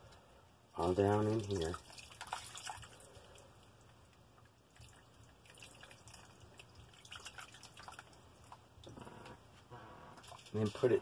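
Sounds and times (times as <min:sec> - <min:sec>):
water dripping into a tub: 0:00.0 - 0:09.0, 0:10.1 - 0:11.0.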